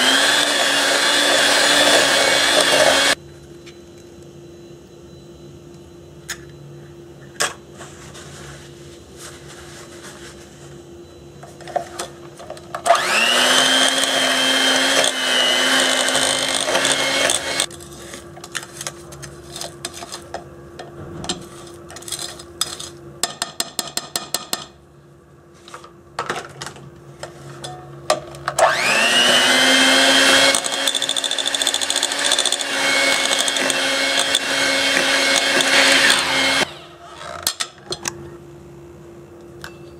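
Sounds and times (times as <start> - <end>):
electric hand mixer whining: 0.0 - 3.2, 12.8 - 17.7, 28.6 - 37.4.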